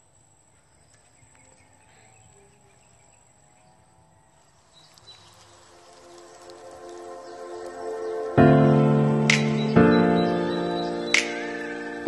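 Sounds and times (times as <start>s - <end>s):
high insect-like whine: 2.9s - 9.0s
music: 5.8s - 12.0s.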